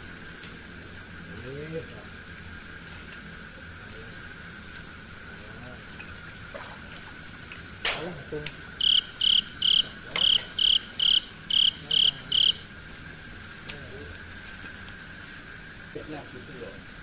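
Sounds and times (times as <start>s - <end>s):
faint high hum: 8.5s - 13.3s
short high chirps: 8.8s - 12.6s.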